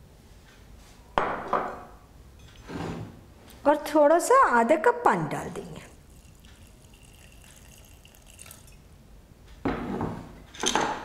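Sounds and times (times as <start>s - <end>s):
lid scraping on a counter: 2.6s - 3.1s
water trickling into a pot: 6.0s - 8.9s.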